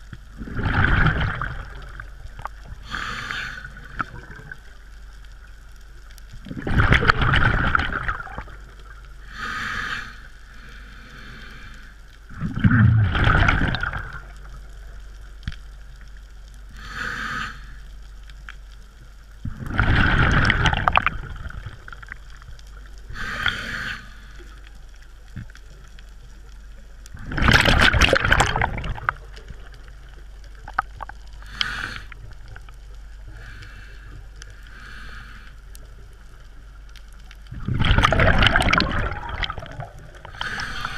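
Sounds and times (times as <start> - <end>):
gurgling rush of exhaled bubbles: 0.3 - 2.8, 3.7 - 4.7, 6.4 - 8.8, 12.3 - 14.7, 19.4 - 22.5, 27.1 - 32.7, 37.4 - 40.9
regulator inhalation hiss: 2.8 - 4.0, 9.2 - 12.0, 16.7 - 17.8, 23.1 - 24.6, 31.4 - 32.3, 33.3 - 35.6.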